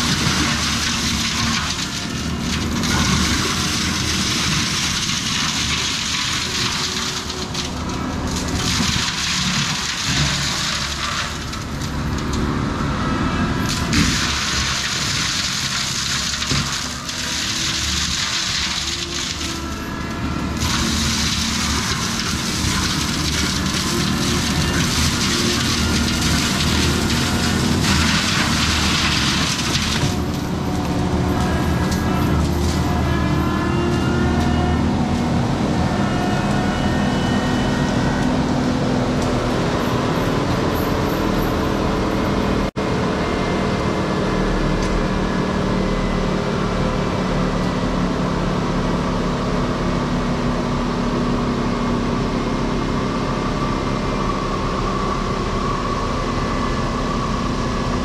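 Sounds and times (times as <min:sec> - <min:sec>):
mulcher grinding brush: 0:00.0 - 0:12.5, 0:13.5 - 0:35.3
diesel engine running hard: 0:00.0 - 0:58.0.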